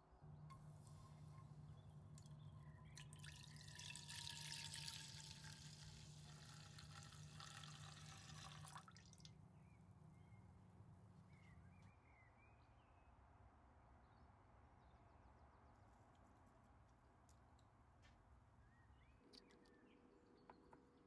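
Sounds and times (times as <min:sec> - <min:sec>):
milk pouring into a pan: 0:02.9 - 0:09.3.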